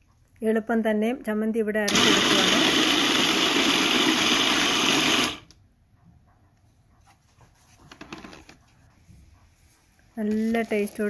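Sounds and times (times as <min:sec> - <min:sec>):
food processor motor grinding: 0:01.9 - 0:05.5.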